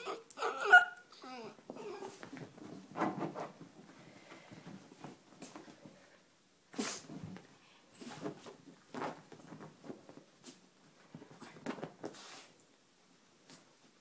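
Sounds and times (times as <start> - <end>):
dog breathy nose sounds: 6.8 - 7.2.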